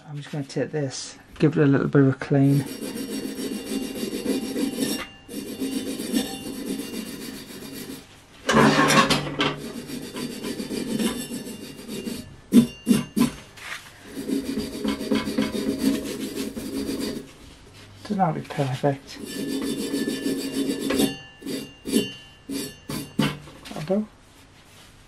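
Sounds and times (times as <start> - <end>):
hand tool scraping metal: 2.4 - 17.3, 18.5 - 23.6
sharp knocks: 22.8 - 23.6.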